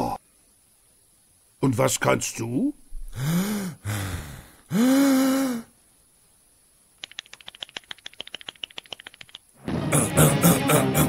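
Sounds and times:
rapid dry clicks: 7.0s - 9.6s.

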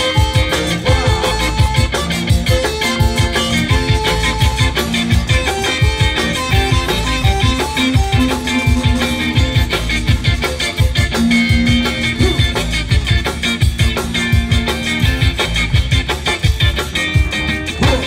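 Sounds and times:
accordion chords: 0.0s - 18.0s
drum kit beat: 0.0s - 18.0s
guitar: 0.0s - 18.0s.

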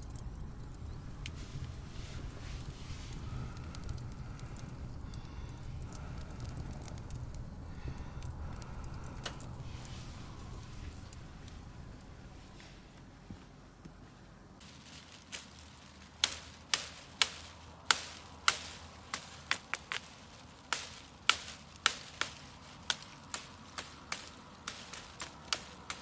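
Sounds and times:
wood fire crackling and popping: 0.0s - 13.2s, 14.6s - 26.0s.

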